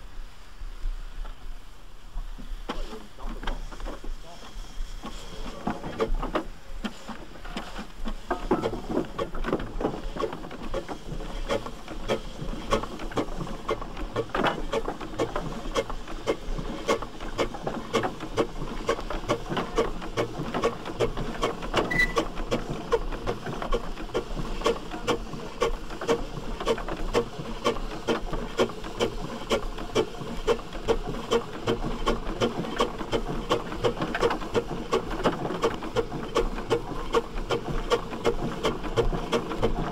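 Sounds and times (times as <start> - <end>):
steam traction engine chuffing: 2.4 - 39.9.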